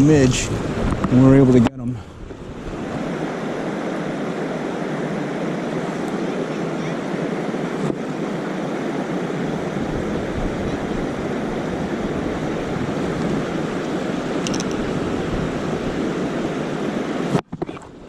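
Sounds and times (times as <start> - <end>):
river water rushing: 0.0 - 17.4.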